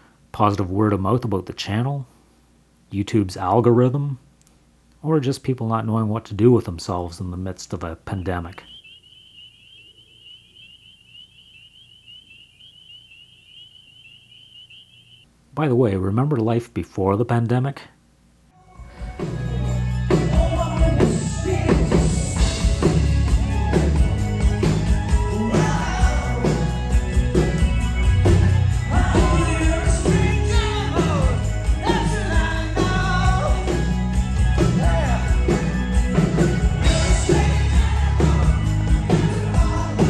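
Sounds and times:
live band playing: 19.2 - 40.0
man singing into a microphone: 25.3 - 26.7, 28.9 - 33.7, 36.9 - 38.5, 39.1 - 40.0.

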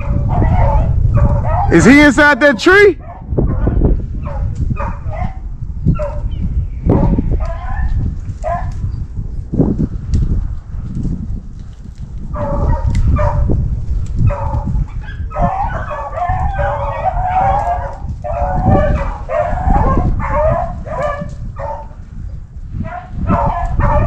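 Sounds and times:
dogs baying: 0.0 - 8.8, 12.4 - 13.5, 14.2 - 22.0, 22.8 - 24.0.

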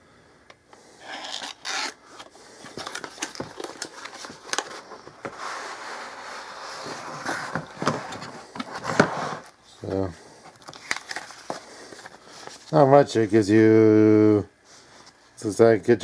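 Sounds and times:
paper and cardboard rustling: 2.6 - 9.6, 10.6 - 13.0
cardboard tray sliding out of box: 5.3 - 9.5.

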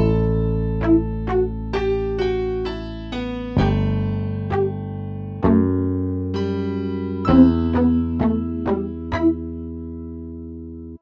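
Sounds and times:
plucked guitar notes: 5.4 - 10.0.

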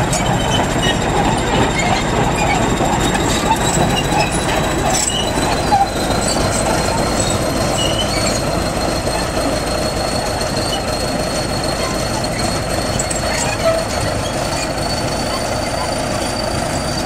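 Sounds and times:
diesel engine running: 0.0 - 17.0
steel tracks clanking: 0.0 - 17.0
thin high squeal: 0.1 - 17.0.

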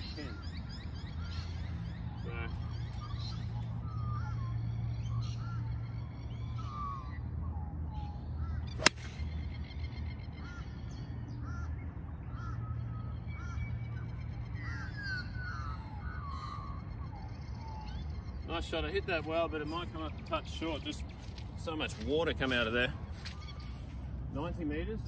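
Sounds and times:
birds chirping: 0.0 - 25.0
golf club striking ball: 8.8 - 9.3.

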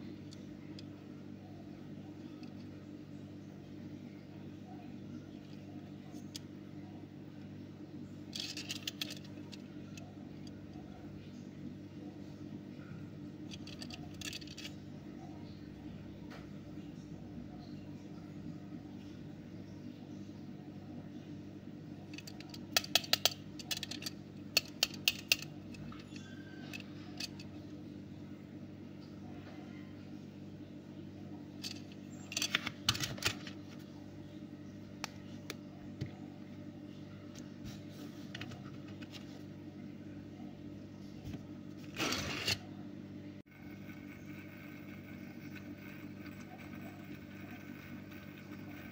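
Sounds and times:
faint steady hum: 0.0 - 48.9
hands handling toy car clicks: 8.4 - 9.3, 13.5 - 14.7
small turntable motor whirring: 43.5 - 48.9.

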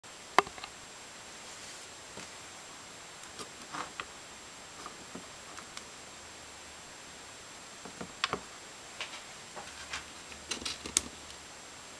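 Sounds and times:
steady background hiss: 0.0 - 11.9
circuit board clicks and rustles: 9.0 - 11.4.

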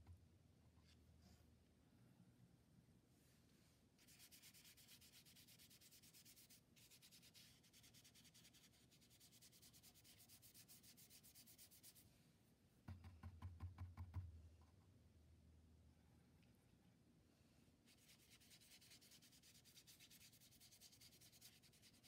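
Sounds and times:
paintbrush scratching on paper: 4.0 - 12.0, 17.9 - 22.0.

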